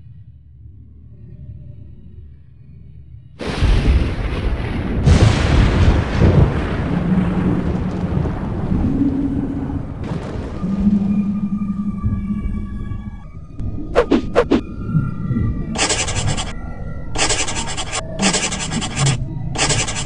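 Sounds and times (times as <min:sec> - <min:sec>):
cartoon thunder crash: 0:03.4 - 0:07.8
noisy rumble: 0:13.6 - 0:15.0, 0:15.8 - 0:16.6, 0:17.2 - 0:20.0.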